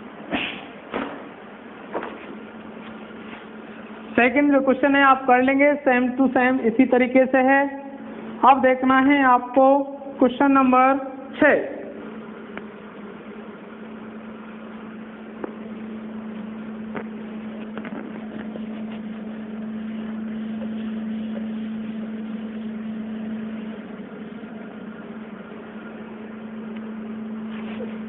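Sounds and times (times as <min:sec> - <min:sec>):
low mechanical hum: 0:00.0 - 0:28.0
duster rubbing chalkboard: 0:17.2 - 0:23.8.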